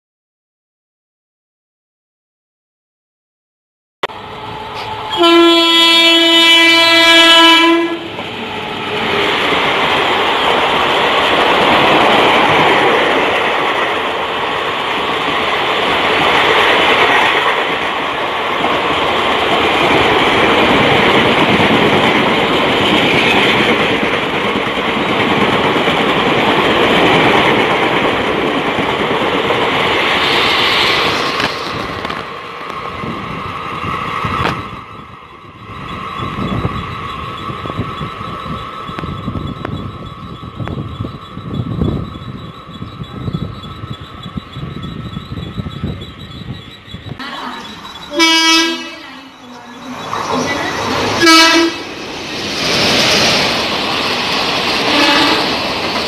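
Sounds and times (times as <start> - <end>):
train coaches rushing past: 4.1 - 56.0
locomotive air horn blast: 5.1 - 8.2, 48.1 - 49.2, 51.2 - 51.9, 54.9 - 55.6.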